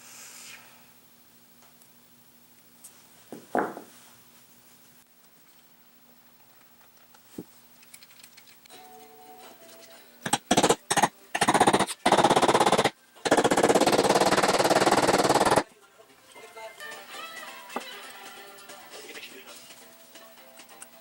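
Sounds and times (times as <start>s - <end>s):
faint background music: 8.7s - 14.2s, 15.2s - 21.0s.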